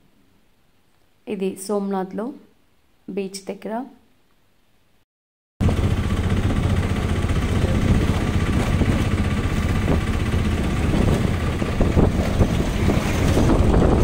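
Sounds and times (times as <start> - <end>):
diesel engine rumble: 5.6 - 14.0.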